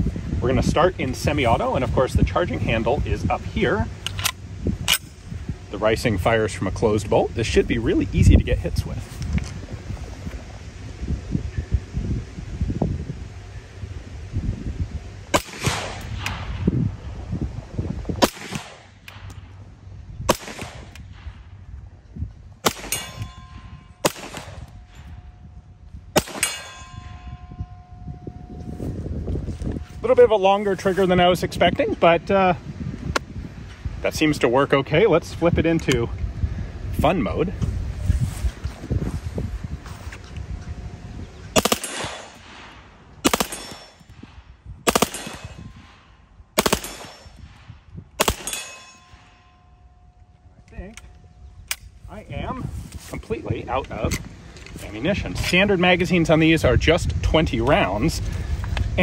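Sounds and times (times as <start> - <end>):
submachine gun single shots: 15.3 - 16.5, 18.2 - 19.3, 20.3 - 21.0, 22.6 - 23.2, 24.0 - 24.7, 26.2 - 26.7, 41.6 - 44.0, 44.9 - 46.0, 46.6 - 47.4, 48.2 - 48.9
gunshot echo: 15.4 - 16.7, 18.2 - 19.3, 20.3 - 21.3, 24.0 - 24.7, 26.2 - 26.9, 41.6 - 44.0, 44.9 - 47.6, 48.2 - 49.0
steel target ringing: 22.6 - 29.2, 43.2 - 44.2, 48.2 - 50.4
submachine gun bursts: 46.6 - 47.1.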